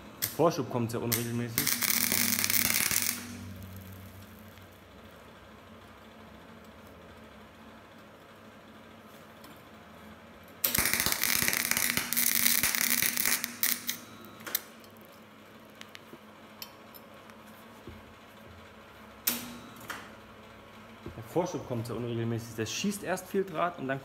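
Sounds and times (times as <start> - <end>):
welding arc crackling: 0.0 - 5.2, 10.6 - 14.8.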